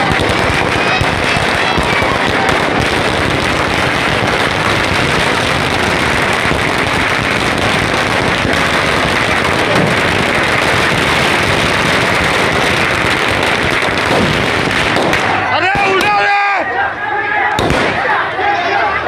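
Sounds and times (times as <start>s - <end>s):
firecrackers crackling: 0.0s - 16.7s, 17.4s - 18.4s.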